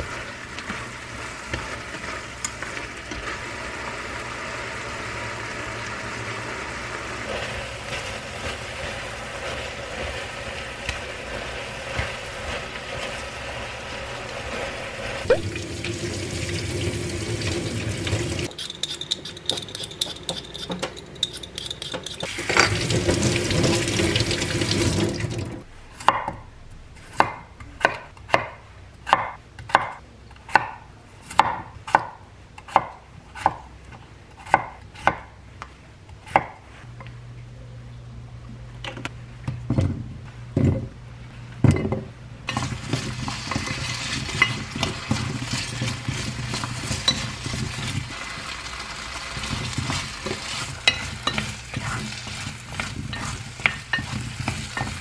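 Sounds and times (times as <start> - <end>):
chopsticks stirring a pan: 7.3 - 15.3, 18.4 - 22.4, 42.5 - 55.0.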